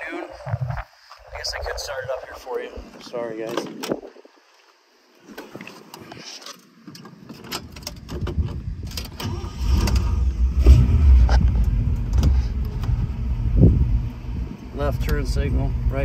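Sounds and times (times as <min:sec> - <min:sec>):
car engine starting and running: 0:08.8 - 0:16.0.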